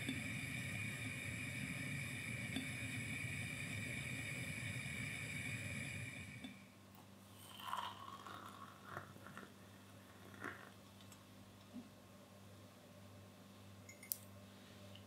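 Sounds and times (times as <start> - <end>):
steady hiss and low rumble: 0.0 - 7.4
water poured into a mug: 7.4 - 9.5.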